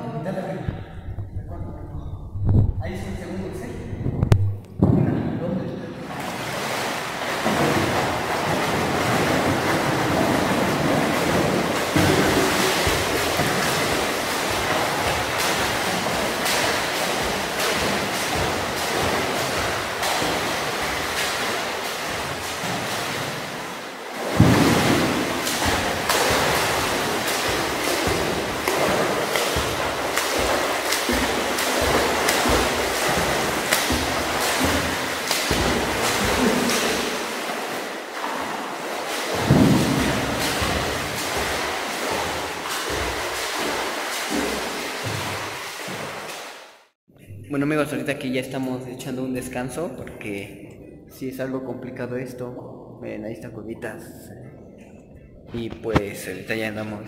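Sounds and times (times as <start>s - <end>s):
swimmer splashing in pool: 6.0s - 47.0s.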